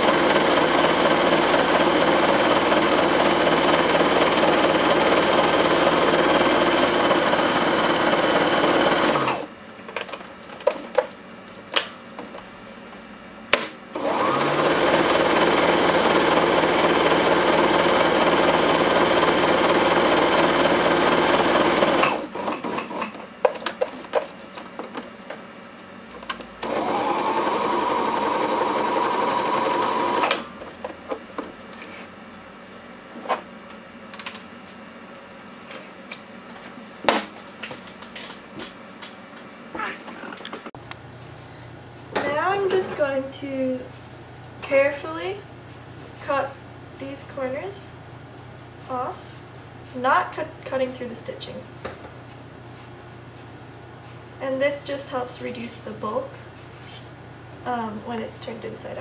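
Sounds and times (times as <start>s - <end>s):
sewing machine stitching: 0.0s - 9.5s, 14.0s - 23.2s, 26.6s - 30.5s.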